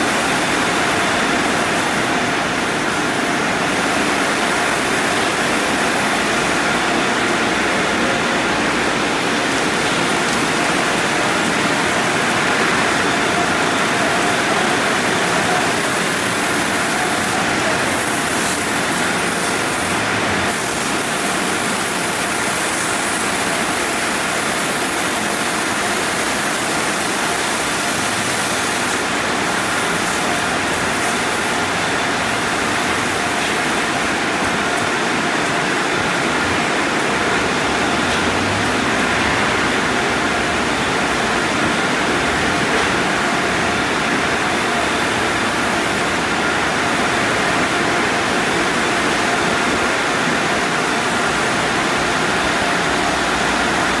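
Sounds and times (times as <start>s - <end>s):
water spraying onto a car: 0.0s - 36.3s.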